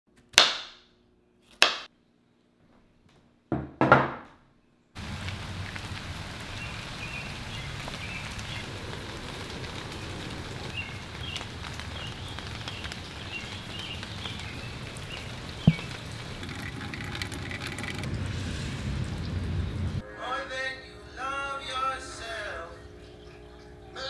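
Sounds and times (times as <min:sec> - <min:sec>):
rain falling: 0:05.0 - 0:20.0
sharp tap: 0:15.7 - 0:16.0.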